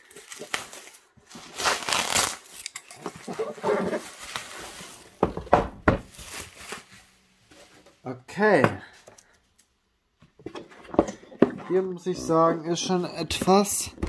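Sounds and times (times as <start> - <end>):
bubble wrap crinkling: 0.0 - 5.2, 6.0 - 7.8.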